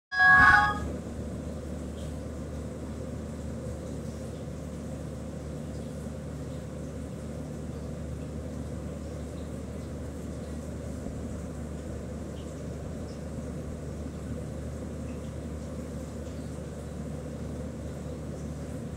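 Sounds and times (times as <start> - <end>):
loud steady tones: 0.1 - 0.9
low background hum: 0.1 - 18.9.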